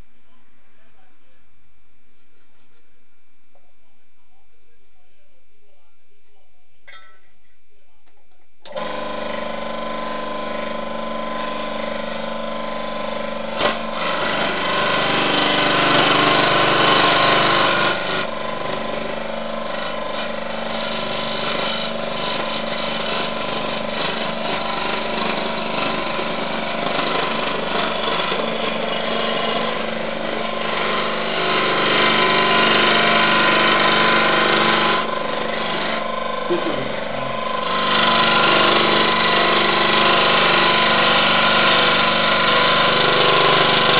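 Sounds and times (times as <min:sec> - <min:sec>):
scroll saw motor hum: 0:08.7 - 0:43.9
blade cutting metal sheet: 0:13.1 - 0:43.9.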